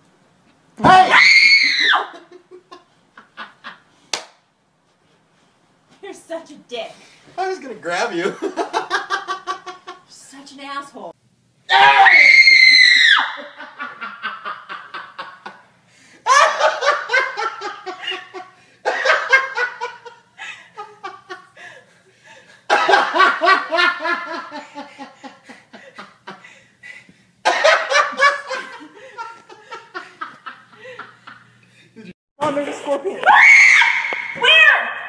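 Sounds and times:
man laughing hard: 0:22.7 - 0:26.6, 0:27.5 - 0:31.5.

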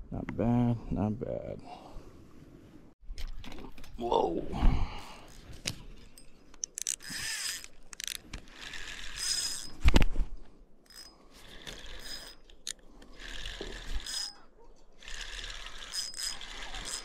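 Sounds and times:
fishing reel cranking: 0:06.7 - 0:09.8, 0:10.9 - 0:14.4, 0:15.0 - 0:17.0.

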